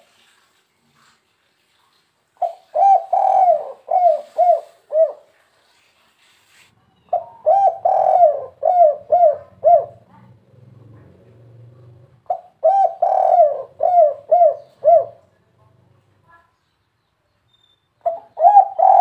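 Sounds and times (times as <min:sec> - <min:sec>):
dove cooing: 0:02.4 - 0:05.5, 0:07.1 - 0:15.3, 0:18.0 - 0:19.0.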